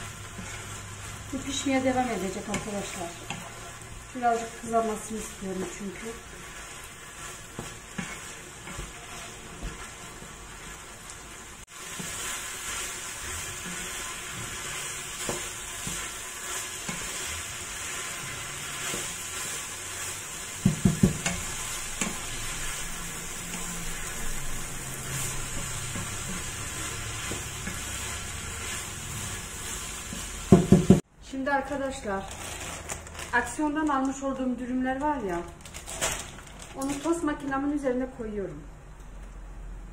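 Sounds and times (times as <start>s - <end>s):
chicken sizzling in a frying pan: 0.0s - 31.0s
chips frying: 0.0s - 31.0s, 31.9s - 37.8s
wooden spoon scraping a pan: 0.0s - 31.0s.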